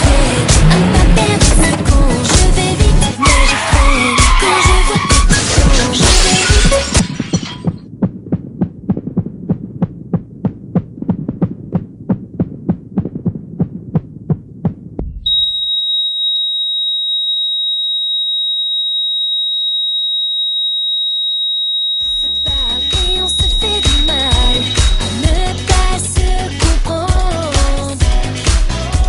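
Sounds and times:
heartbeat thumps: 0:03.8 - 0:15.4, 0:22.1 - 0:28.2
low rumble: 0:06.7 - 0:15.3
steady high beep: 0:15.2 - 0:25.4.

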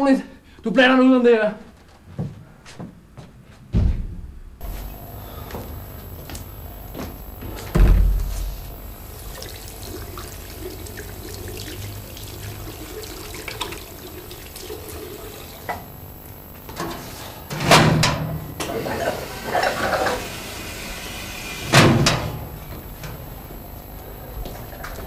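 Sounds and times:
loud thuds: 0:03.7 - 0:06.2, 0:06.8 - 0:09.0
water running from tap: 0:08.2 - 0:16.7, 0:18.4 - 0:22.2.

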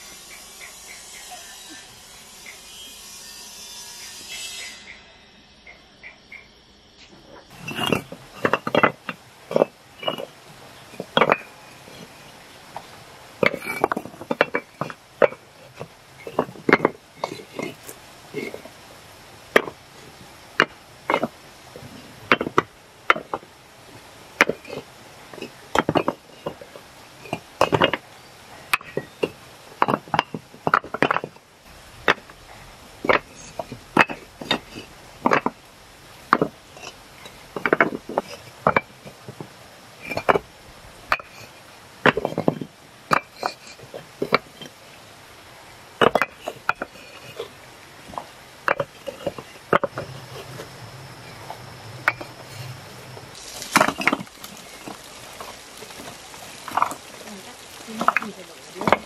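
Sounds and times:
hard objects knocking: 0:07.5 - 0:12.2, 0:12.8 - 0:18.8, 0:19.5 - 0:19.8, 0:20.6 - 0:23.5, 0:24.4 - 0:28.1, 0:28.7 - 0:31.4, 0:33.0 - 0:35.6, 0:36.2 - 0:40.5, 0:41.1 - 0:41.4, 0:42.0 - 0:44.8, 0:46.0 - 0:52.7, 0:53.4 - 0:59.0.

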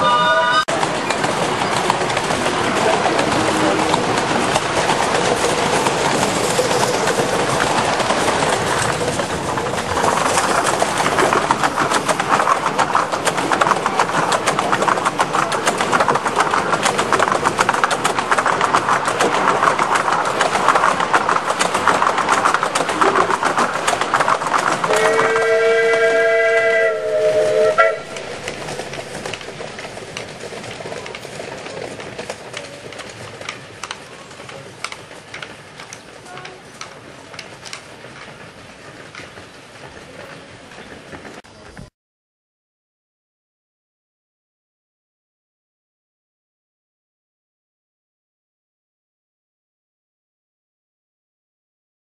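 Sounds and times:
steam whistle chord: 0:00.0 - 0:00.7, 0:24.9 - 0:28.6
wheels clattering on track: 0:00.6 - 0:41.9.

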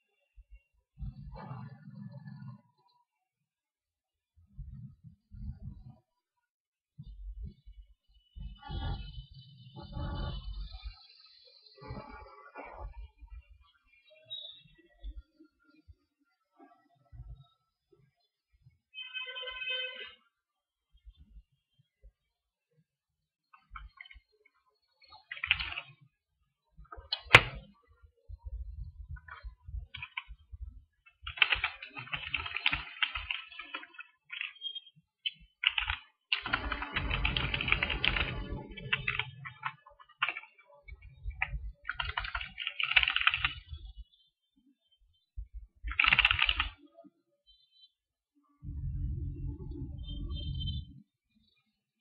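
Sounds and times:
keyboard typing clicks: 0:25.3 - 0:25.9, 0:27.0 - 0:27.8, 0:29.1 - 0:30.4, 0:31.1 - 0:43.8, 0:45.9 - 0:46.8.

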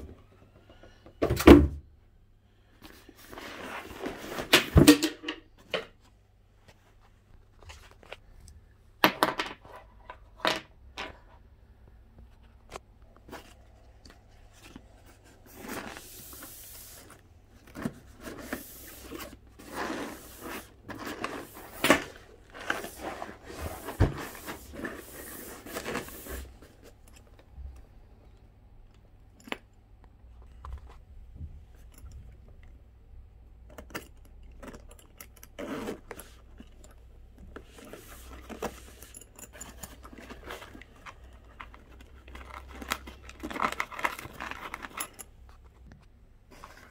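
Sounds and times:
packaging rustling and tearing: 0:40.0 - 0:45.2.

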